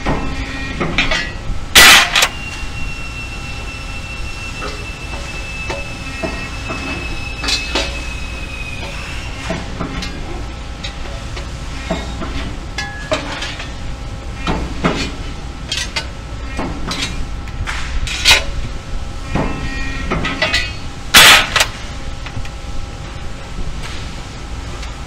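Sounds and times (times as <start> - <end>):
sheet metal clanking and rattling: 0.1 - 2.4, 19.4 - 21.8
loud metallic clash: 1.0 - 2.4, 20.4 - 21.8.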